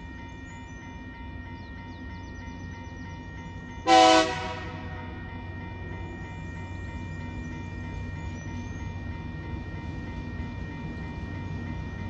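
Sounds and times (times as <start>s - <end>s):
train horn blast: 3.9s - 5.1s.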